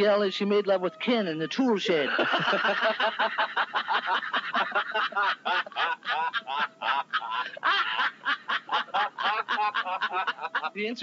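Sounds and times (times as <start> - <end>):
people laughing hard: 0.6 - 10.9.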